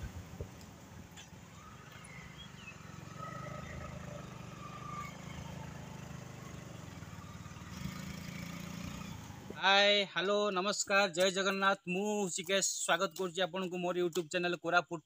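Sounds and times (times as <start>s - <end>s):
motorcycle engine droning: 0.0s - 9.6s.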